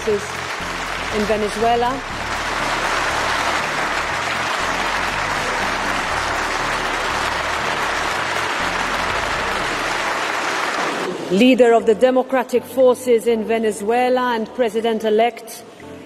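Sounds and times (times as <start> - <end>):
crowd applauding: 0.0 - 11.3
low background music: 0.0 - 16.0.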